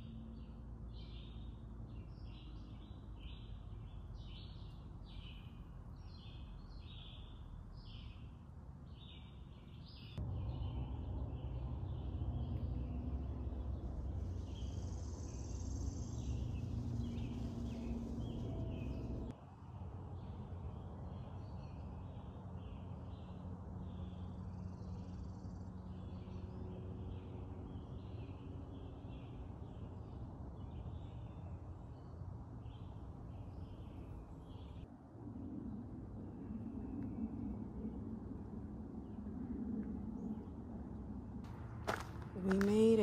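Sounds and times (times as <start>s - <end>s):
birds chirping: 0.0s - 19.3s, 41.5s - 43.0s
low rumbling background: 0.0s - 19.4s.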